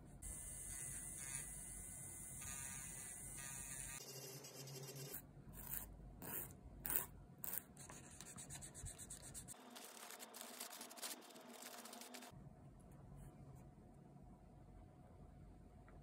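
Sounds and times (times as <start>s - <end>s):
electric nail drill humming: 0.2s - 5.2s
paper wipe crinkling and rubbing: 9.5s - 12.3s.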